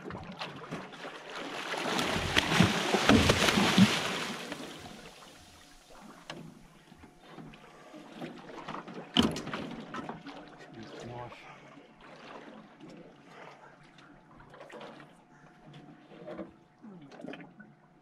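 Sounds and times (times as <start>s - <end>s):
shark thrashing and splashing: 0.3s - 5.4s.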